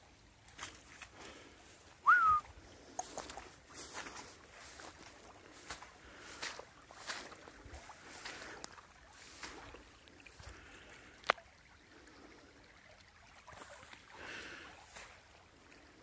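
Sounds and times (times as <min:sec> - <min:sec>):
rushing floodwater: 0:00.0 - 0:16.0
footsteps on wet grass: 0:00.4 - 0:11.4.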